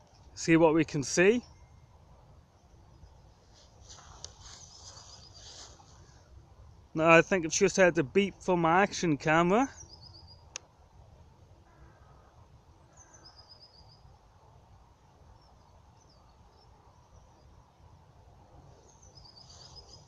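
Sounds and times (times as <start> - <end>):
distant birds calling: 11.6 - 17.8.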